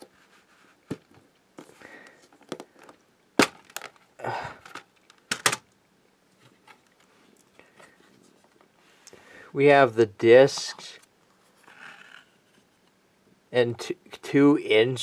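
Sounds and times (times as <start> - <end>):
plastic case clicking open: 4.7 - 5.6.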